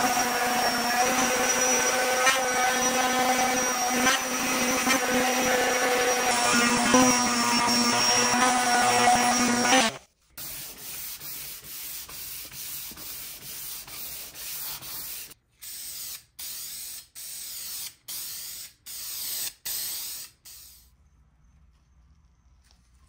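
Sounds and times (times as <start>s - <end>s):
electric palm sander running: 0.0s - 10.0s
hand sanding strokes: 0.0s - 17.9s.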